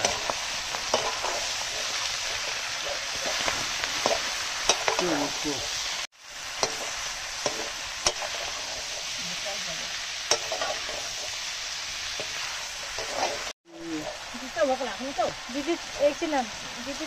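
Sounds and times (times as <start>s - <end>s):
ladle scraping and knocking pan: 0.0s - 5.3s, 6.6s - 9.1s, 10.3s - 11.4s, 12.1s - 13.5s
chicken sizzling in a wok: 0.0s - 17.0s.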